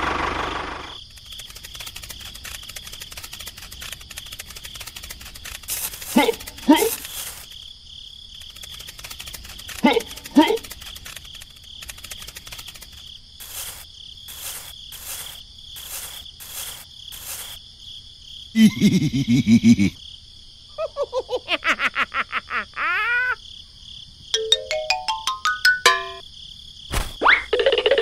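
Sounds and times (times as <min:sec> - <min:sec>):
crickets chirping: 0:00.2 - 0:28.0
cartoon character voice: 0:06.2 - 0:07.0
springy cartoon effects: 0:24.4 - 0:26.2
tone stepping upward: 0:24.4 - 0:26.2.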